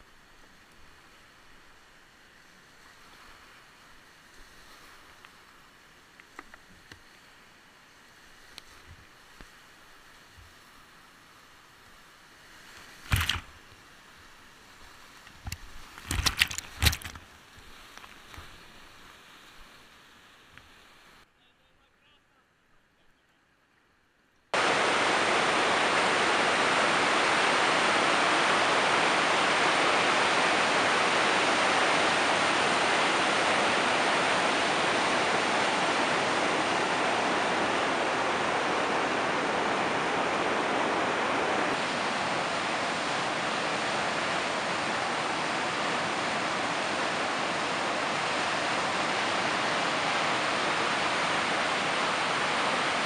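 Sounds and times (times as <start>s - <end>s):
river rapids rushing: 24.6s - 53.0s.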